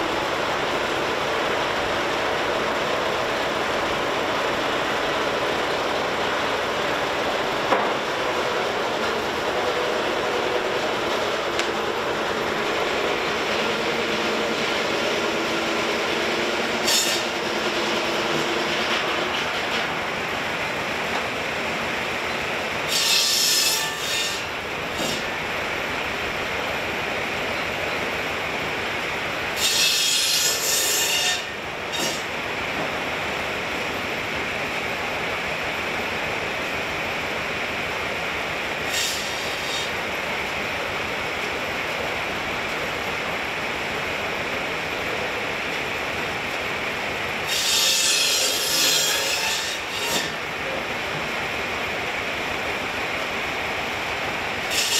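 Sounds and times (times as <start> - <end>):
saw blade cutting log: 10.1 - 20.0, 22.8 - 25.3, 29.5 - 32.3, 38.8 - 40.0, 47.4 - 50.5, 54.6 - 54.9.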